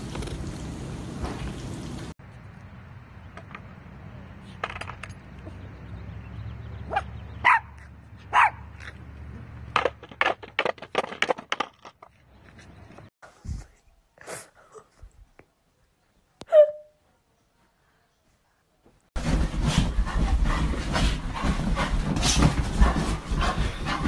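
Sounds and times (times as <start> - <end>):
small dog barking: 6.9 - 8.7.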